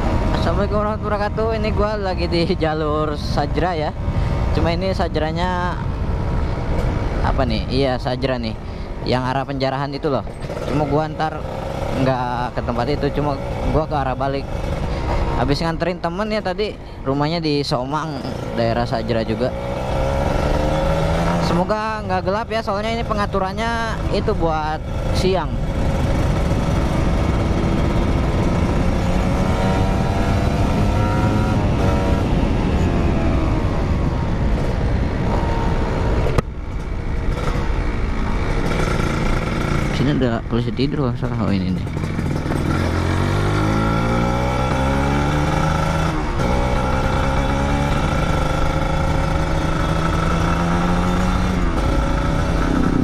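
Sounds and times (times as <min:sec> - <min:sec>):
wind and road rumble: 0:00.0 - 0:53.0
motorcycle engine running: 0:10.1 - 0:16.4, 0:18.2 - 0:53.0.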